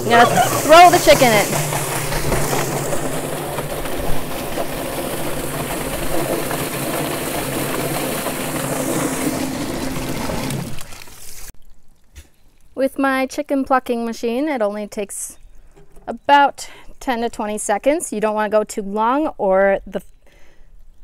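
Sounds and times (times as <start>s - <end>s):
motor hum: 0.0s - 11.5s
hose water spraying into drum: 0.0s - 11.6s.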